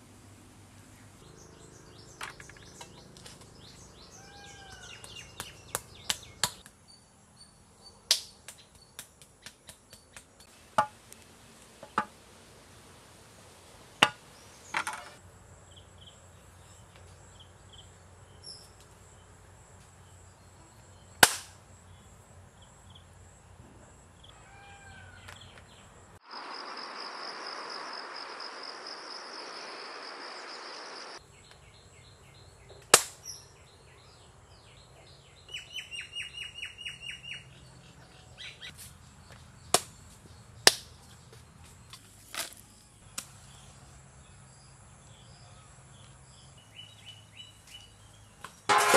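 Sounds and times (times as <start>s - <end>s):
insects: 0.0s - 48.9s
birds chirping: 0.6s - 12.2s, 14.0s - 48.7s
hiss with high whine: 26.3s - 31.2s.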